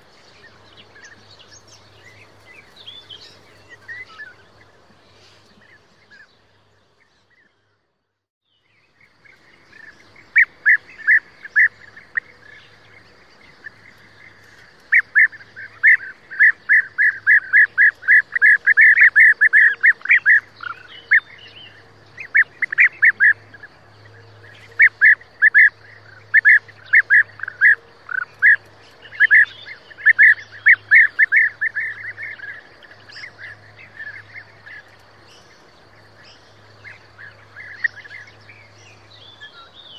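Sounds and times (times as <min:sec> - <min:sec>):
birds calling in quick runs: 0:09.0 - 0:39.9.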